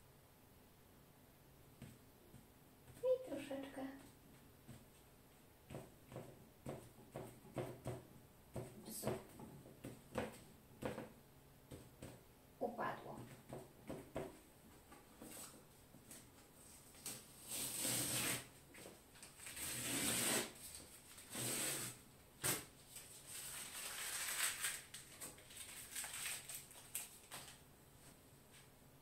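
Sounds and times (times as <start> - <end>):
masking tape peeling off paper: 17.0 - 18.5, 19.2 - 27.6.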